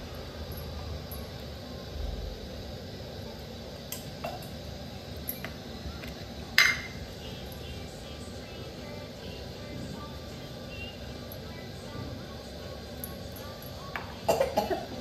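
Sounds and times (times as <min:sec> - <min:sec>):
utensils clicking and tapping: 0:05.2 - 0:07.8.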